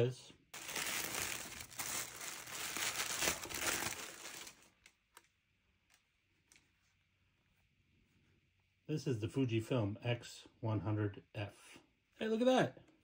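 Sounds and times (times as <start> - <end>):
paper wrap crinkling: 0.6 - 5.2.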